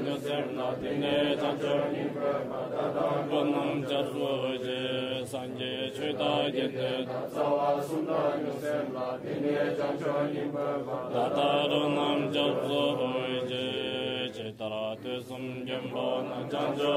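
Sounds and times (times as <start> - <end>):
person chanting prayers: 0.0 - 16.9.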